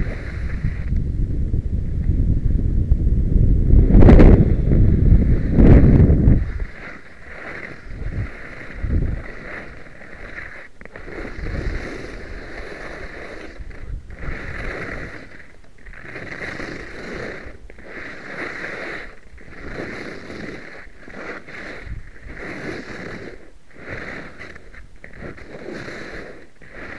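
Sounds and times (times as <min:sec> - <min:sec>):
skis scraping over snow: 0:00.0 - 0:01.1, 0:03.8 - 0:26.9.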